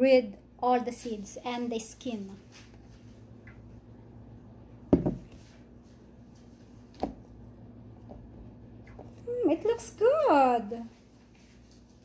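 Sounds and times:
low steady hum: 0:00.0 - 0:12.0
blender jar knocking on countertop: 0:04.9 - 0:05.3.

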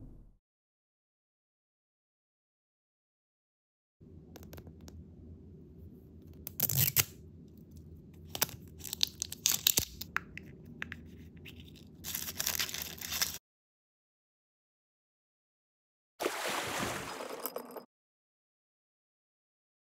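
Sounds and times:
plastic wrapper tearing and crinkling: 0:08.3 - 0:10.1, 0:12.0 - 0:13.4.

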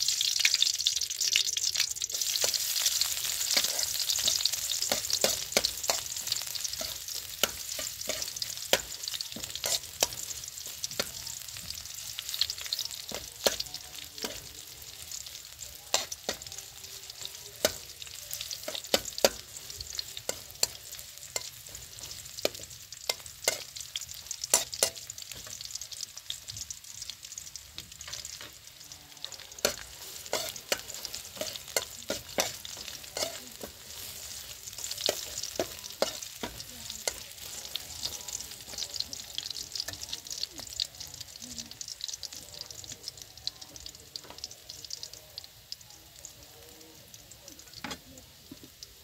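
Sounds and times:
garlic sizzling in hot oil: 0:00.0 - 0:49.0
metal spatula scraping a wok: 0:02.1 - 0:11.1, 0:17.2 - 0:23.8, 0:29.2 - 0:38.8.

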